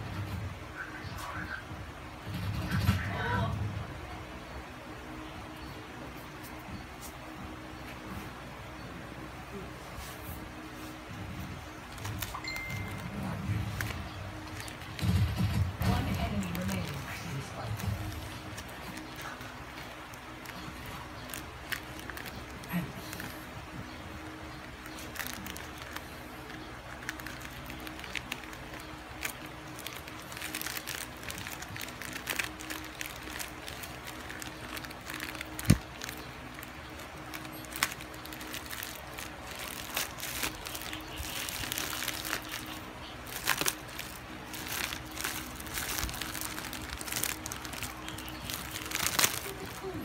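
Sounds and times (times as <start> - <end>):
plastic wrap rustling: 9.9 - 50.0
plastic mailer bag crinkling: 11.6 - 50.0.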